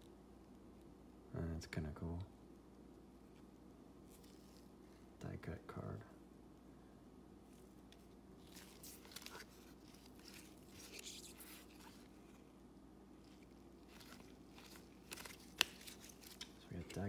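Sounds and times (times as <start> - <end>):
trading cards rustling and scraping: 3.3 - 5.1, 7.5 - 12.6, 13.2 - 17.0.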